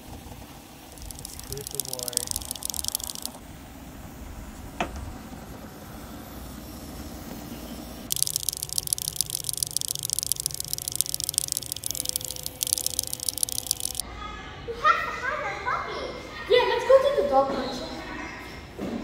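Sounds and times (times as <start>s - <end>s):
toy cockroaches rattling on tabletop: 1.0s - 3.4s, 8.1s - 14.0s.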